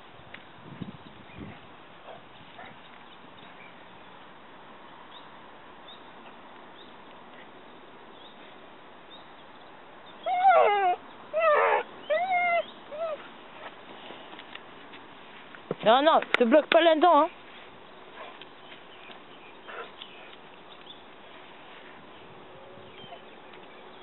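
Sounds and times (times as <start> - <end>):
dog whining: 10.2 - 13.2.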